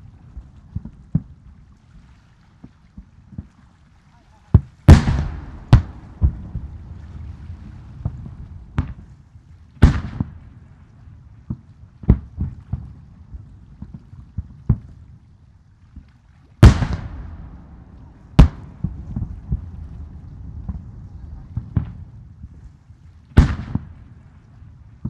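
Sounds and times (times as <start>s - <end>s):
fireworks booming: 4.8s - 9.1s, 9.8s - 10.4s, 16.6s - 22.2s, 23.4s - 24.2s.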